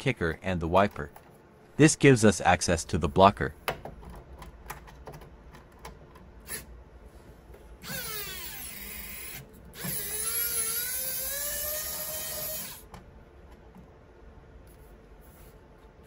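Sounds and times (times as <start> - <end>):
electric screwdriver motor whine: 7.8 - 12.8.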